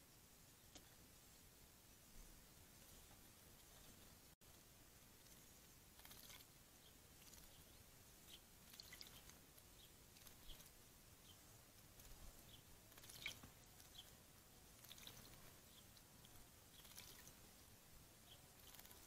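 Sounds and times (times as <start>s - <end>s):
bird splashing in water: 6.0s - 6.5s, 8.6s - 9.4s, 12.9s - 14.0s, 14.8s - 15.5s, 16.7s - 17.4s.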